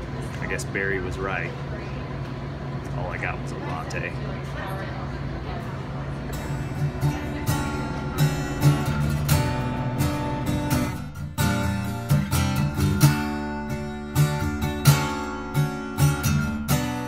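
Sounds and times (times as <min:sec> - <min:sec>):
acoustic guitar strumming chords: 0:05.6 - 0:17.0.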